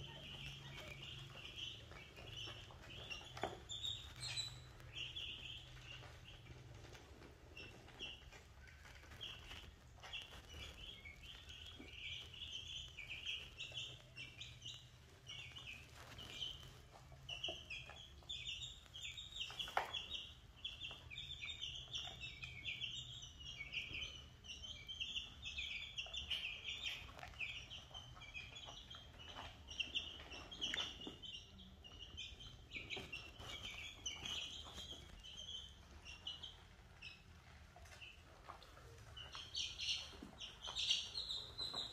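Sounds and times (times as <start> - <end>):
chicks and ducklings peeping: 0.0 - 41.9.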